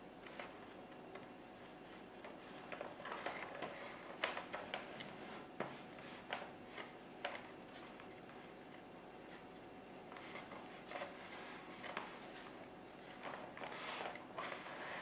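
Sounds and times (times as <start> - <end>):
rustling: 10.1 - 15.0.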